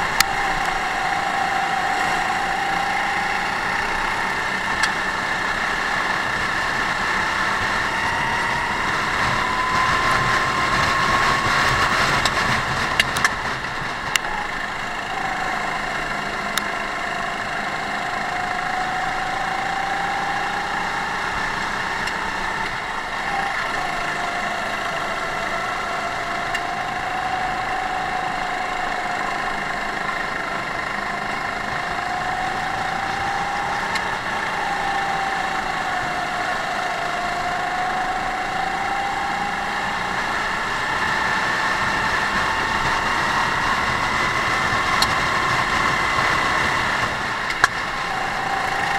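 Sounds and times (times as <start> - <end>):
go-kart engine racing: 0.0 - 48.9
sharp clicks: 47.5 - 47.9.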